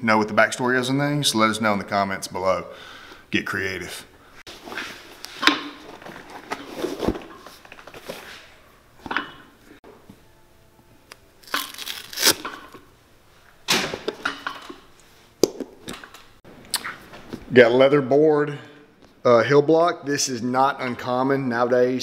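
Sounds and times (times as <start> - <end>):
boot sole tearing and cracking: 11.4 - 12.6.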